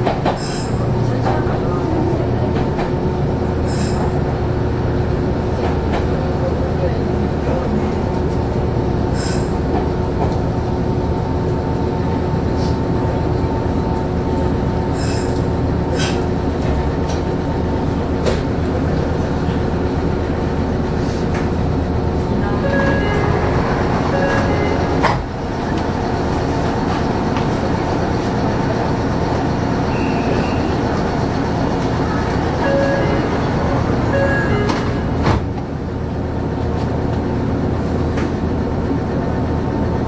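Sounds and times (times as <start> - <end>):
train equipment hum: 0.0 - 40.0.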